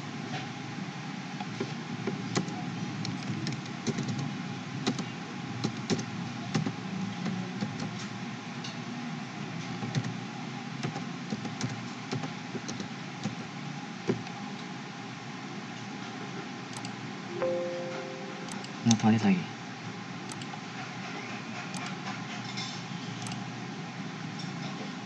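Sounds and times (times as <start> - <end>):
steady background hum: 0.0 - 25.0
keyboard keys clicking: 16.8 - 19.1.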